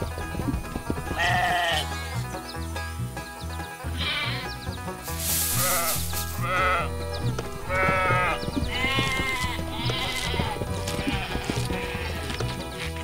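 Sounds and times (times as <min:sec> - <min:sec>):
cheerful background music: 0:00.0 - 0:13.0
sheep bleating: 0:01.1 - 0:02.2, 0:03.9 - 0:04.6, 0:05.4 - 0:12.4.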